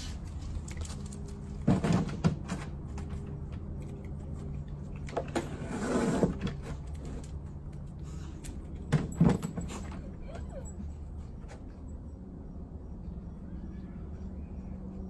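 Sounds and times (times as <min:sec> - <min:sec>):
low machine hum: 0:06.8 - 0:15.0.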